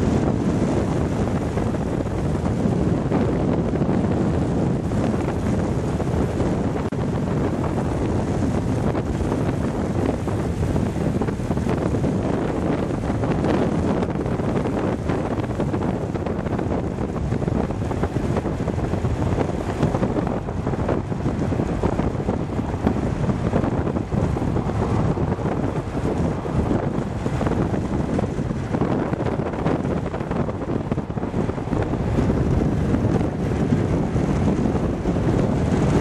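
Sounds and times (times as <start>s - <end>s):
road noise: 0.0s - 36.0s
wind rushing over microphone: 0.0s - 36.0s.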